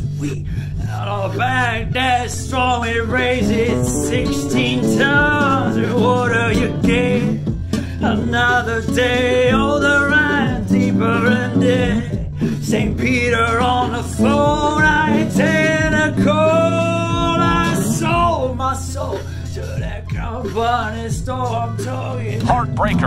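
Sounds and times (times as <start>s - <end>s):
low bass line: 22.4s - 23.0s
wavering voice-like melody: 22.4s - 23.0s.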